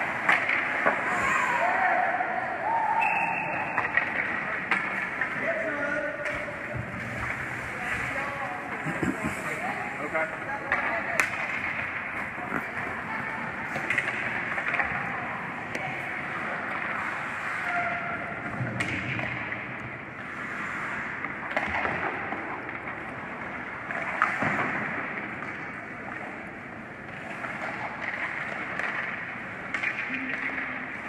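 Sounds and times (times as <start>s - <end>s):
hockey sticks and puck clacking: 0.0s - 1.9s, 3.0s - 31.0s
skates scraping on ice: 3.8s - 25.8s.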